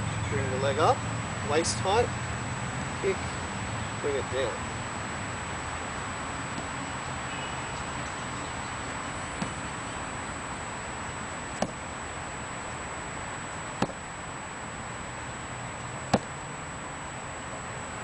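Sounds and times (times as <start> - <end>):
kicks hitting foam shield: 11.6 - 11.8, 13.8 - 14.0, 16.1 - 16.3.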